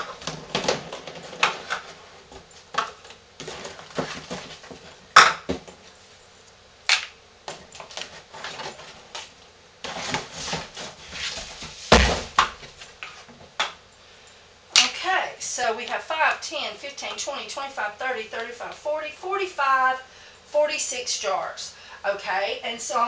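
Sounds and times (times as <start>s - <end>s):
heavy thump: 11.9s - 12.5s.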